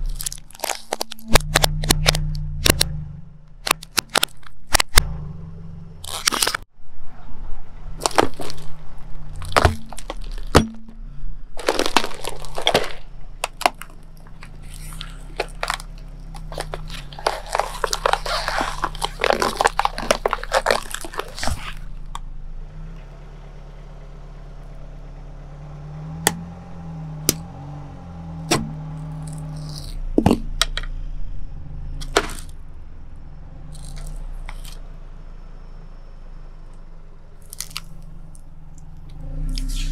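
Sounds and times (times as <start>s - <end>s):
tyre crushing cardboard and plastic: 0.0s - 2.9s, 6.0s - 6.7s, 7.9s - 22.2s, 28.4s - 30.9s, 32.0s - 32.6s, 33.7s - 34.8s, 37.4s - 39.9s
car engine idling: 0.0s - 39.9s
sharp cracks: 6.0s - 6.7s, 8.0s - 22.3s.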